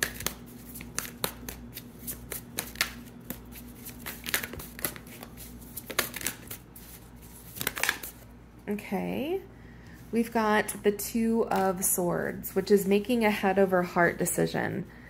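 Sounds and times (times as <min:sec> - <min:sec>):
cards being shuffled: 0:00.0 - 0:08.2.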